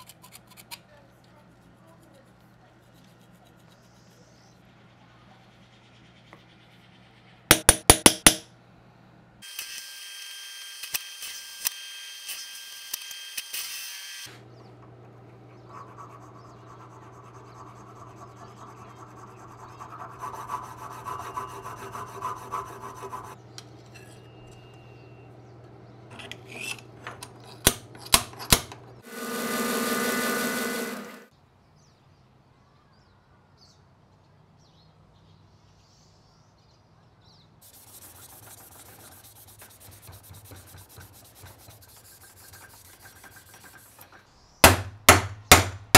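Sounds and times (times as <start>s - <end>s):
hammer tapping on a punch: 7.5s - 8.5s, 44.6s - 45.9s
file rasping on metal: 16.0s - 23.4s, 37.8s - 44.2s
high hissing machine noise: 29.0s - 31.3s
machine whir: 29.0s - 31.3s.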